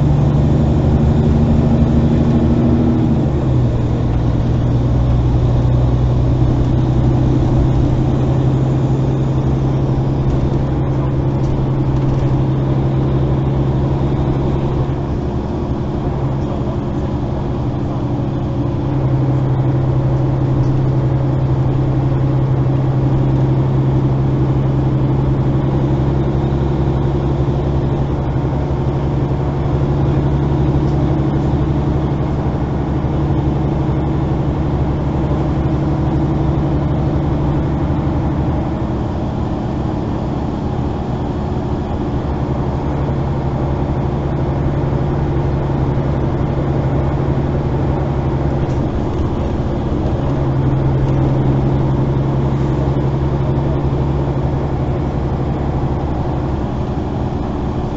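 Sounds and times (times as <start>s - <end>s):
bus engine drone: 0.0s - 57.9s
road noise: 0.0s - 57.9s.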